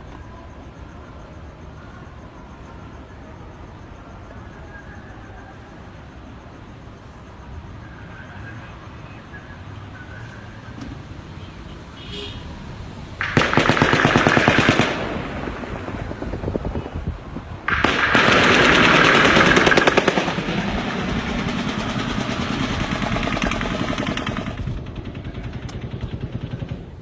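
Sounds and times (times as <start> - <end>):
automatic gunfire bursts: 13.2 - 16.6, 17.7 - 26.9
fainter gunfire: 13.2 - 17.0, 17.7 - 26.9.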